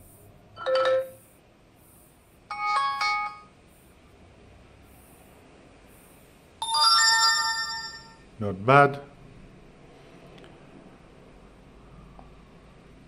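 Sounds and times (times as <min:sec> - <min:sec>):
multi-note chime: 0:06.6 - 0:08.2
ringing chime: 0:06.6 - 0:08.3.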